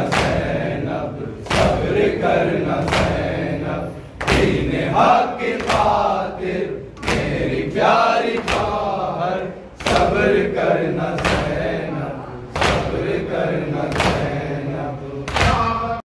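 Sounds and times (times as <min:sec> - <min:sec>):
men chanting together: 0:00.0 - 0:16.0
chest beating slaps: 0:01.4 - 0:02.0, 0:12.6 - 0:13.1, 0:13.9 - 0:14.4, 0:15.3 - 0:15.8.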